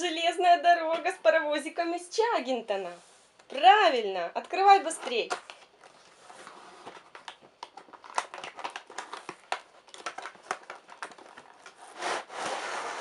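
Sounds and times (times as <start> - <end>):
packing scraping rustle: 5.5 - 13.0.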